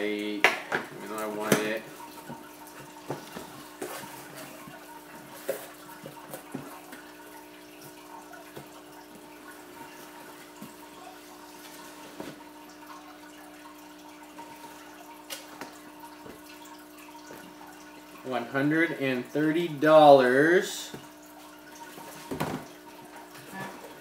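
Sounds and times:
aquarium filter humming: 0.0s - 24.0s
water trickling: 0.0s - 24.0s.

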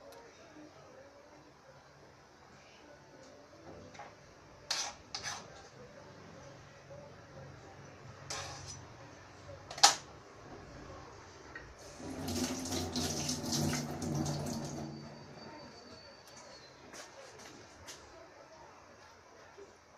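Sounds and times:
tap running into steel sink: 12.0s - 14.9s.

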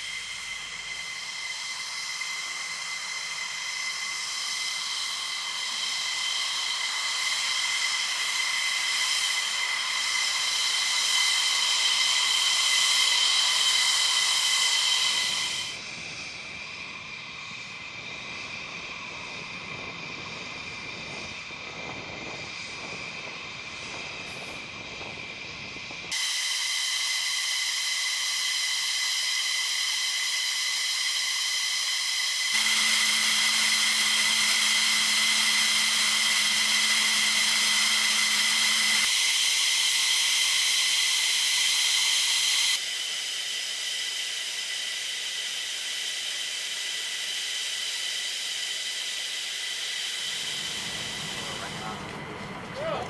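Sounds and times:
low hum: 0.0s - 15.8s, 28.2s - 39.1s, 50.2s - 53.0s
jet engines idling: 0.0s - 53.0s.

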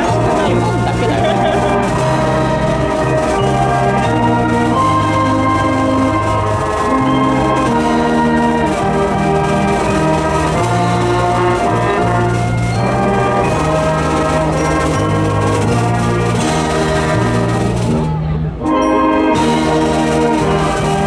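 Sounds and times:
wind band playing: 0.0s - 21.0s.

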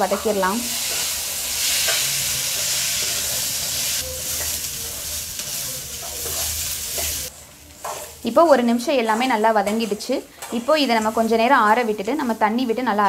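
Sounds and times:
food sizzling in hot oil: 0.0s - 13.0s
spatula stirring in metal pan: 5.4s - 8.2s.

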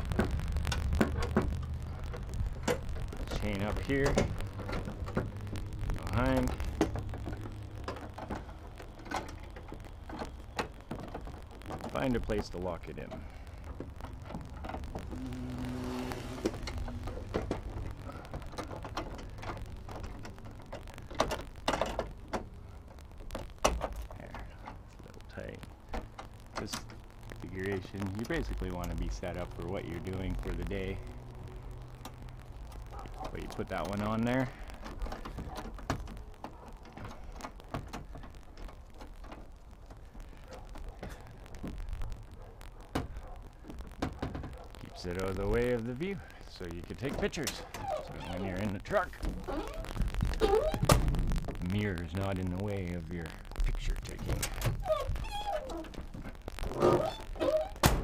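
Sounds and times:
clicks and knocks: 0.0s - 5.8s, 6.4s - 12.4s, 16.3s - 25.0s
low rumble: 0.0s - 12.2s, 12.8s - 23.6s.

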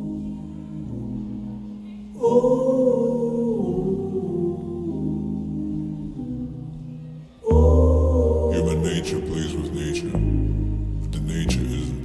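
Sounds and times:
sustained music chords: 0.0s - 12.0s
deep bass: 7.5s - 12.0s.

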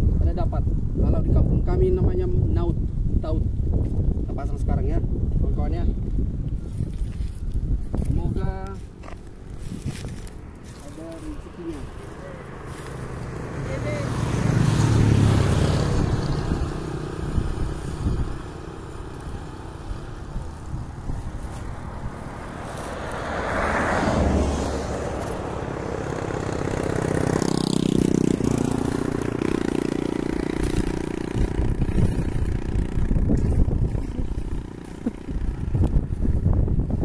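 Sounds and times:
vehicle engine running: 8.6s - 37.0s.

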